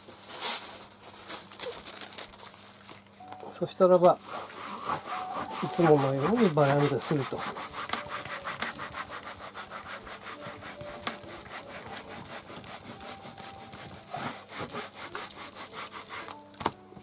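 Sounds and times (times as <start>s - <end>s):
baren scrubbing over paper: 4.2s - 16.4s.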